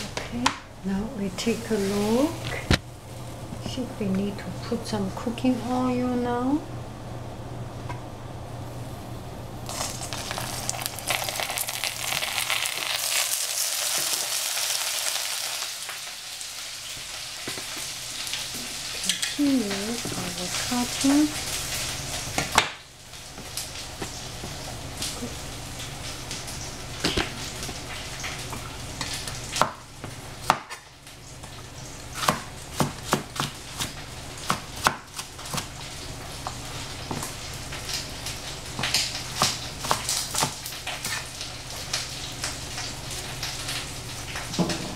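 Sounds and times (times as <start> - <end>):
steady low hum: 0.0 - 13.2
oil sizzling in a hot pan: 9.6 - 44.9
knife chopping vegetables: 28.5 - 30.8, 32.1 - 35.7, 38.8 - 41.2.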